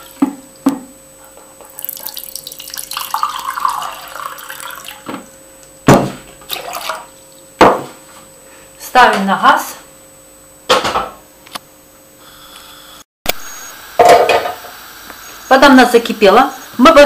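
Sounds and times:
water pouring into metal pot: 1.8s - 5.0s, 6.5s - 7.2s.

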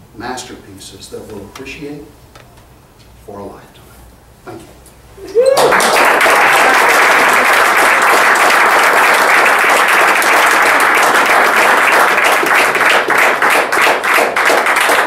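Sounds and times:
audience applauding: 5.5s - 15.0s.

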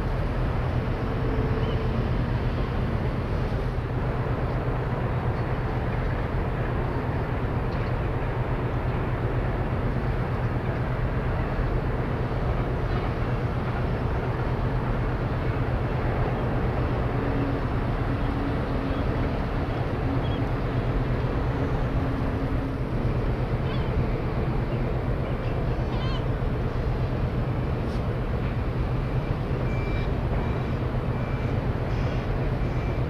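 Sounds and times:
ship diesel engines droning: 0.0s - 33.0s.

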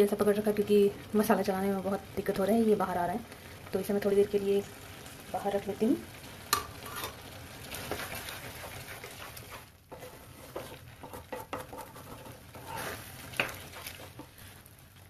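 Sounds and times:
steady sizzle: 0.0s - 15.0s
spatula scraping metal pan: 6.8s - 7.2s, 7.8s - 14.5s.

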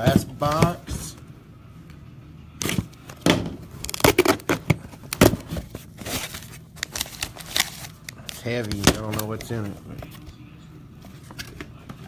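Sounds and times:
tape tearing and crinkling: 3.8s - 4.5s, 5.1s - 9.6s.

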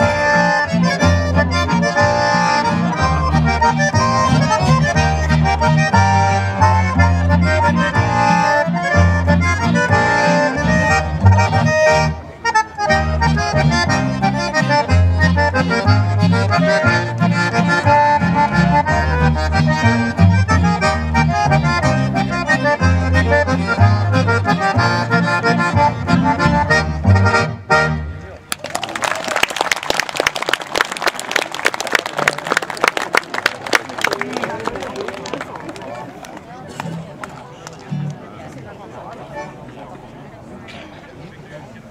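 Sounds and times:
acoustic guitar: 0.0s - 28.1s
plucked double bass: 0.0s - 28.3s
accordions: 0.0s - 28.4s, 39.1s - 40.1s.

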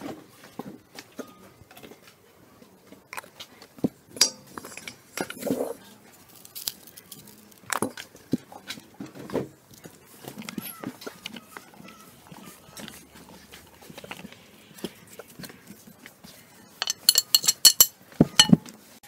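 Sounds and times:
glass jar clinking: 16.8s - 18.6s.

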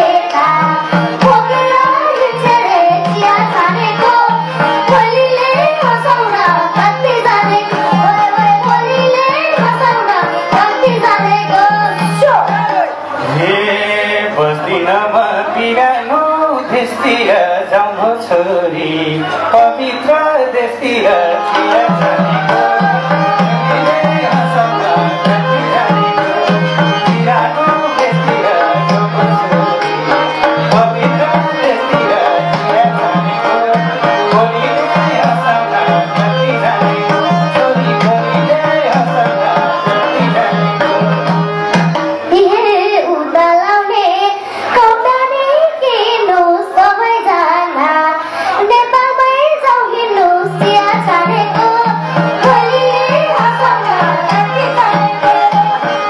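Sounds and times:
child singing into a microphone: 0.0s - 12.9s, 42.3s - 56.0s
hand drums: 0.0s - 13.0s, 20.9s - 42.8s, 50.2s - 56.0s
man singing: 13.2s - 41.4s.

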